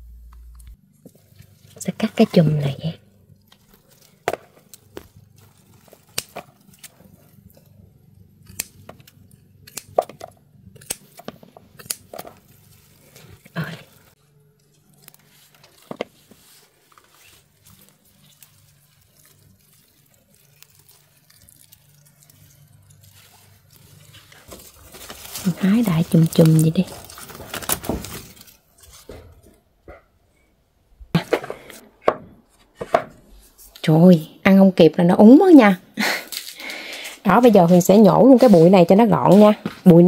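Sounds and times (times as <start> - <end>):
faint low hum: 0.0 - 9.7
plant leaves rustling: 0.5 - 7.8, 11.0 - 29.3, 36.0 - 40.0.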